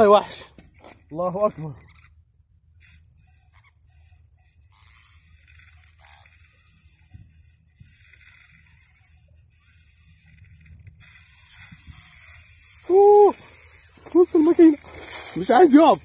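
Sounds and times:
fishing reel drag rasping: 0:00.0 - 0:16.0
outdoor hiss: 0:11.4 - 0:16.0.

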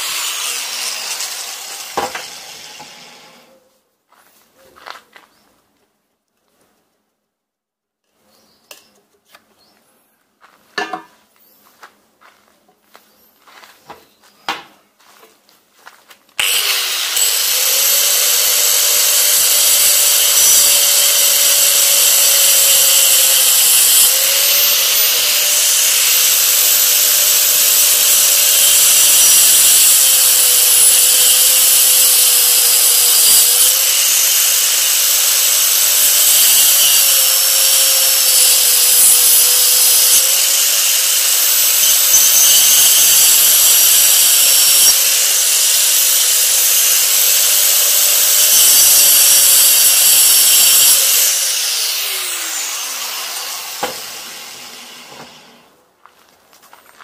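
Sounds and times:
angle grinder cutting wood: 0:00.0 - 0:03.6, 0:16.4 - 0:55.8.

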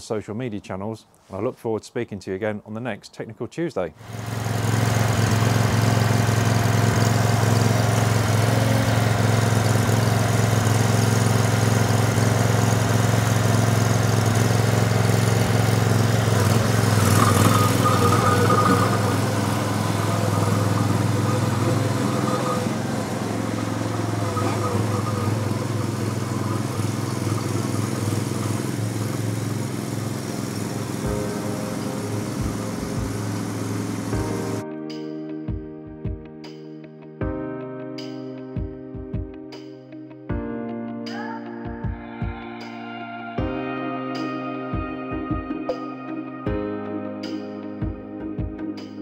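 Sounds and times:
stump grinder engine running: 0:04.0 - 0:34.6.

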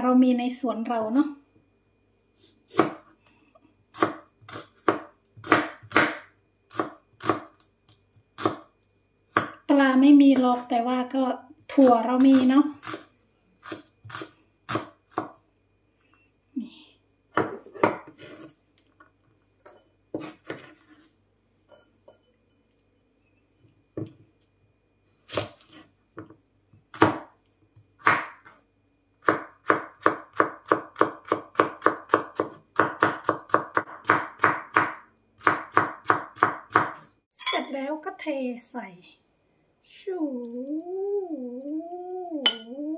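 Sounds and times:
knife chopping on wooden board: 0:02.7 - 0:03.0, 0:04.0 - 0:07.6, 0:13.6 - 0:15.4, 0:26.9 - 0:27.3, 0:28.0 - 0:28.5, 0:29.2 - 0:37.0.

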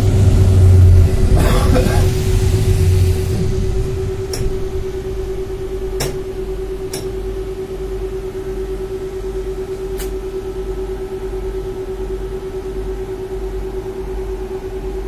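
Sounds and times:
steady electric hum: 0:00.0 - 0:15.0
tram rumble: 0:00.0 - 0:15.0.

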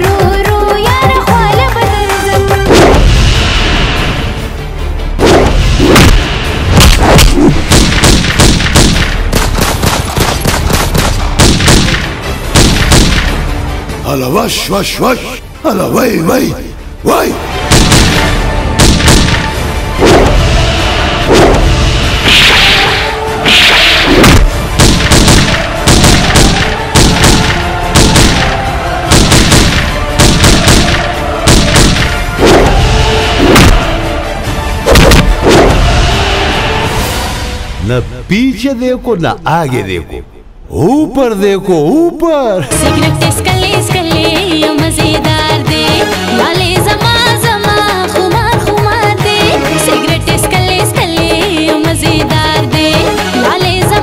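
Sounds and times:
background music: 0:00.0 - 0:54.0
heavy booming strikes: 0:02.7 - 0:04.3, 0:05.2 - 0:13.5, 0:17.6 - 0:34.1, 0:34.8 - 0:36.8
gunfire shots: 0:05.2 - 0:13.4, 0:17.7 - 0:20.4, 0:21.3 - 0:32.8, 0:33.4 - 0:33.9, 0:34.9 - 0:35.8
gunshots: 0:05.2 - 0:13.5, 0:17.6 - 0:20.6, 0:21.3 - 0:34.0, 0:34.9 - 0:36.0.

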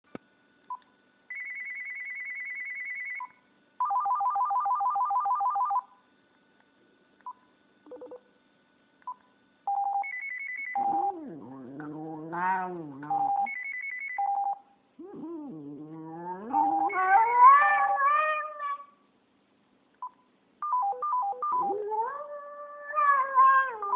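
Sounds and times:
dog howling: 0:10.9 - 0:13.2, 0:15.0 - 0:19.0, 0:21.6 - 0:23.9
phone ringtones and beeps: 0:20.6 - 0:21.7.

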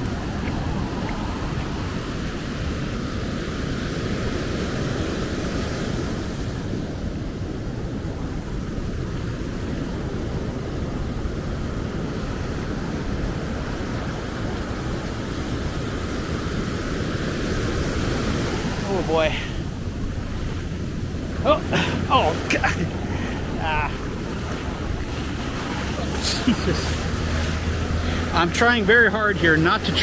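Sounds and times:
surf breaking on beach: 0:00.0 - 0:30.0
wind on microphone: 0:00.0 - 0:30.0.

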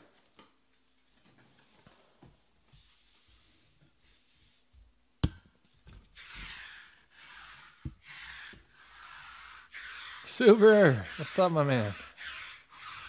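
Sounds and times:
lint roller rolling over cloth: 0:06.2 - 0:13.0.

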